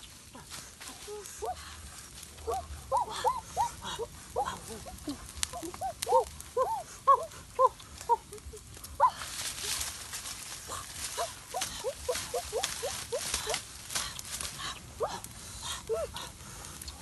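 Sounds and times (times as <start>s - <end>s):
wood fire crackling: 0.0s - 17.0s
animal yelping calls: 2.4s - 8.4s, 10.7s - 13.6s.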